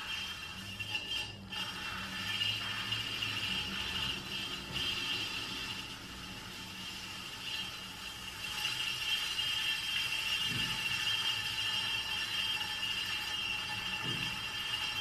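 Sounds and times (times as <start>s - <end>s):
pottery wheel motor whining: 0.0s - 15.0s.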